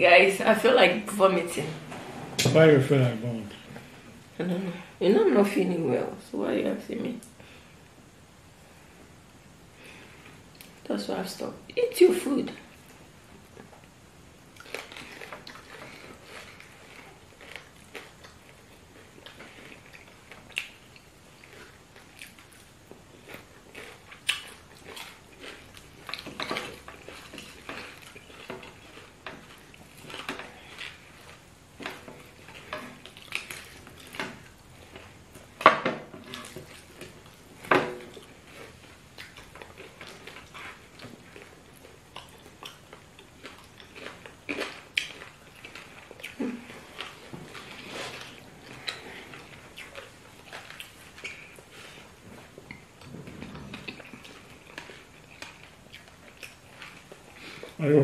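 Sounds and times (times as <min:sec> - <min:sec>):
chewing and soft smacks: 0:14.6 - 0:35.5, 0:36.2 - 0:57.8.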